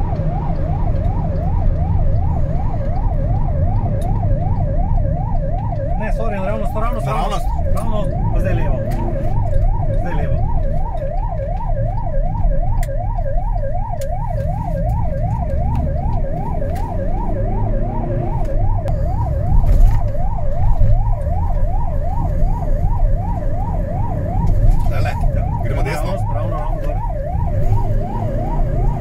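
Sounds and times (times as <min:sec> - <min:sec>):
electronic siren yelping: 0:00.0 - 0:29.0
engine and road rumble: 0:00.0 - 0:29.0.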